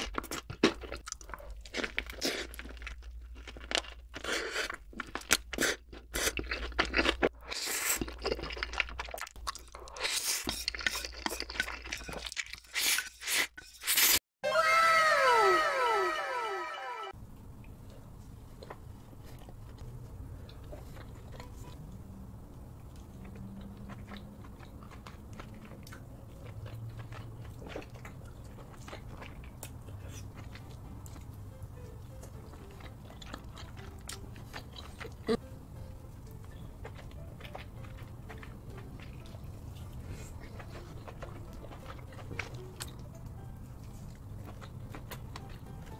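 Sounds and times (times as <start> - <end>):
crunchy chewing: 0.0 - 14.2, 22.7 - 35.4, 36.2 - 45.9
falling whistle-like tones: 14.4 - 17.1.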